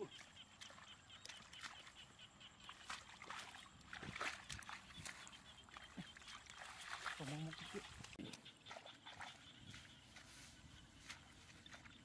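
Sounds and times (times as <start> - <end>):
hands splashing in muddy water: 2.6 - 9.4
feet rustling through grass: 2.8 - 12.0.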